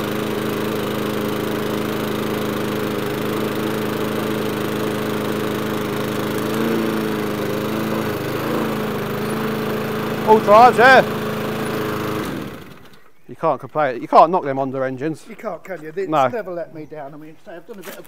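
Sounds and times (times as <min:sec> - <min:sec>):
lawnmower engine running: 0:00.0 - 0:13.2.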